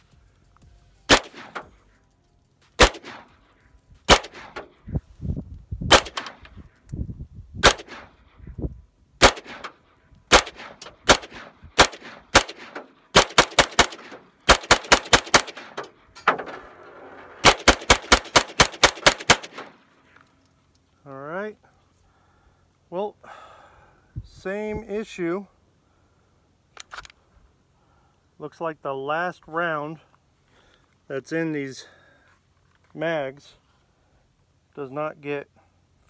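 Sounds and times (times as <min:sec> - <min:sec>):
rifle gunshots echoing: 0:01.1 - 0:01.9, 0:02.8 - 0:03.5, 0:04.1 - 0:04.8, 0:05.9 - 0:06.6, 0:07.6 - 0:08.3, 0:09.2 - 0:16.0, 0:17.4 - 0:19.8.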